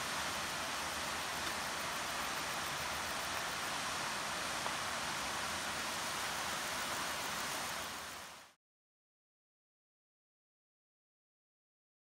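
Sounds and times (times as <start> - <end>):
waterfall rushing: 0.0 - 8.6.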